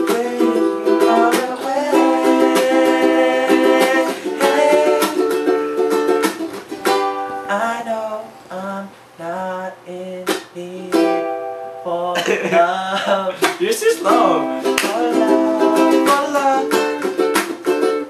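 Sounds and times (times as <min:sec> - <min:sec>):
ukulele: 0:00.0 - 0:08.1, 0:09.9 - 0:18.0
acoustic guitar: 0:00.0 - 0:18.0.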